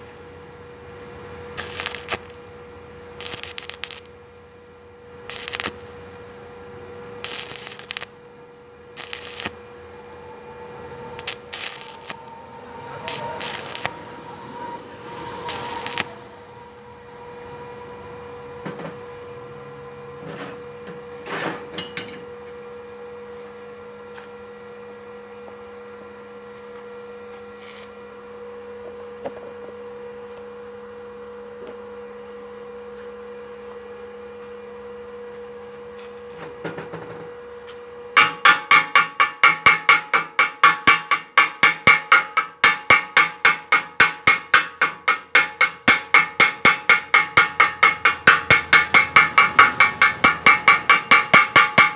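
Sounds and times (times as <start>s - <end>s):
electrical hum: 0.0s - 20.1s
chipping hammer tapping metal: 1.6s - 2.3s, 3.2s - 4.1s, 5.3s - 5.9s, 7.3s - 8.1s, 9.0s - 9.6s, 11.2s - 12.3s, 13.1s - 13.9s, 15.5s - 16.1s, 38.2s - 51.9s
scattered knocks: 38.2s - 51.9s.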